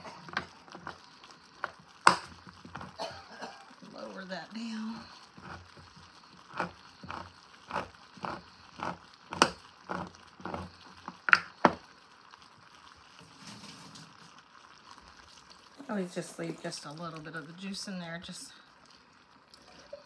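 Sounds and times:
manual can opener clicking: 5.4s - 11.5s.

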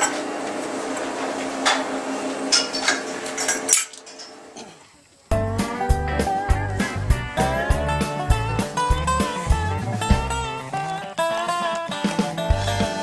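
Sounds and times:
acoustic guitar music: 5.3s - 13.0s.

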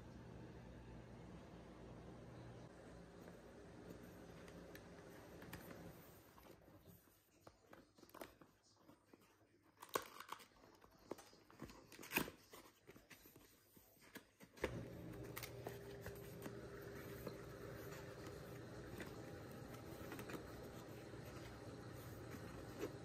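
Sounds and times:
cardboard box being handled: 15.9s - 23.0s.

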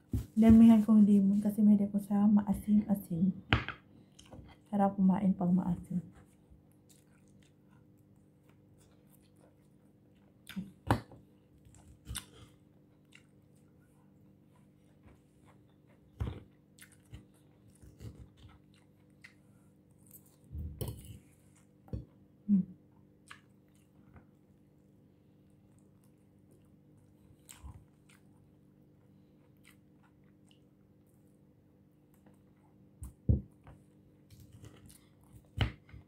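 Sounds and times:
faint steady hum: 0.0s - 36.0s
person chewing crisp lettuce: 6.3s - 10.8s, 11.5s - 21.8s, 25.5s - 31.2s.

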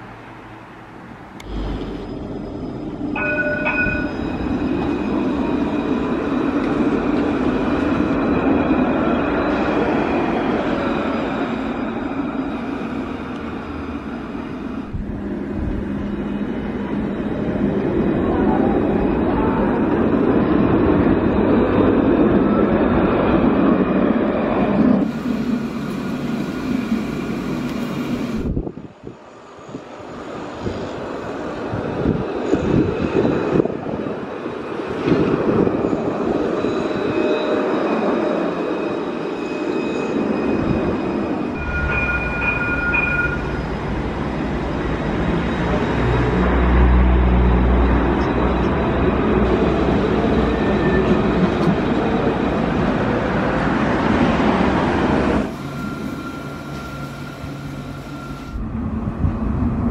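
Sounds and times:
trams passing by: 0.0s - 59.9s
steady high tones: 1.5s - 6.4s, 36.0s - 45.0s.

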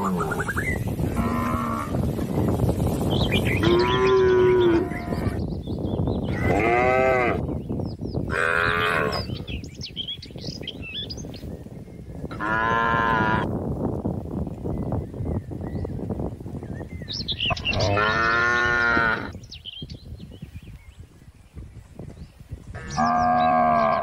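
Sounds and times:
cattle mooing: 22.8s - 24.0s.

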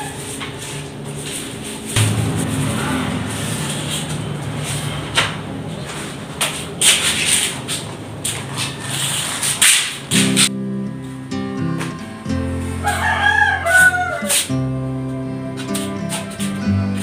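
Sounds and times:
low steady hum: 0.2s - 8.9s
rubber gloves scuffing: 5.8s - 10.5s.

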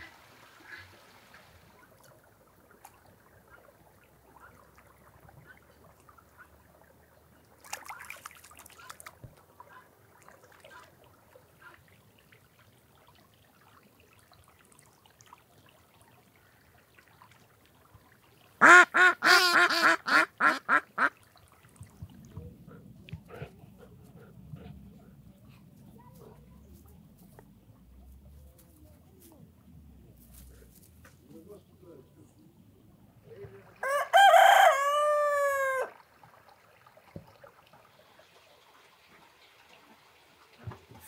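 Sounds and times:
ducks quacking: 18.6s - 21.2s.

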